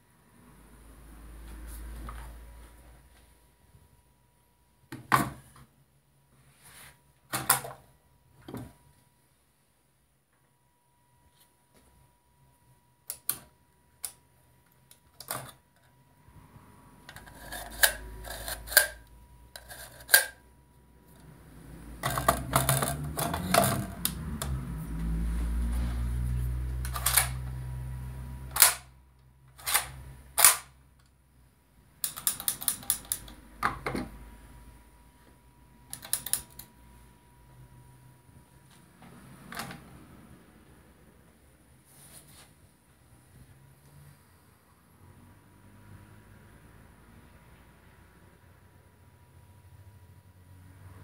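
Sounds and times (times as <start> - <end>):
rubbing and handling noise: 17.0 - 20.4, 41.8 - 42.7
metal clicks and clacks of rifle: 26.9 - 27.4, 29.6 - 30.7, 32.0 - 33.4.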